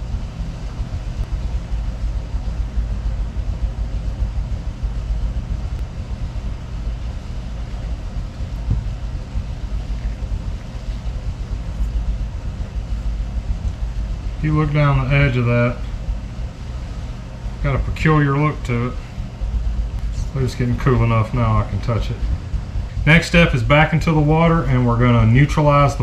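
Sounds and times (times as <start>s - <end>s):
steady low rumble: 0.0s - 26.0s
soft knock: 8.6s - 9.0s.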